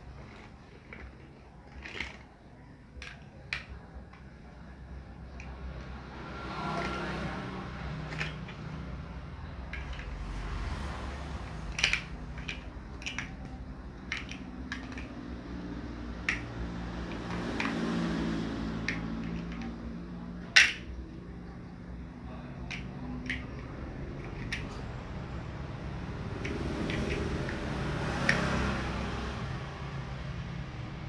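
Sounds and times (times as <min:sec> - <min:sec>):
plastic blocks clicking together: 0:00.1 - 0:04.4, 0:08.0 - 0:08.9, 0:09.6 - 0:10.3, 0:11.2 - 0:18.0, 0:18.7 - 0:21.1, 0:22.6 - 0:24.8, 0:26.3 - 0:28.6.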